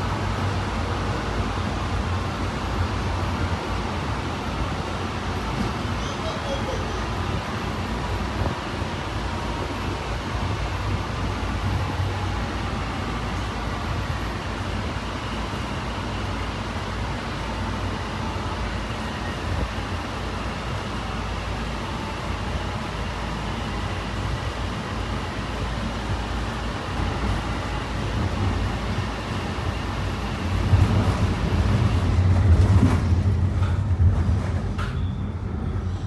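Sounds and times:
train wheels on rail: 0:00.0 - 0:36.0.

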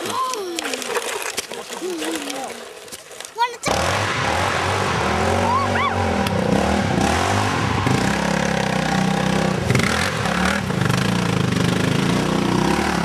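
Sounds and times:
quad bike engine revving: 0:03.6 - 0:13.0.

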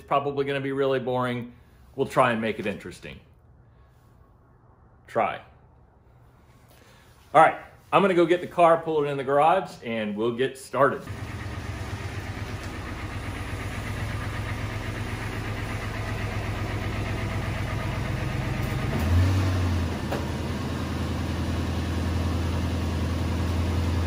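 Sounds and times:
car engine idling: 0:11.1 - 0:24.0.

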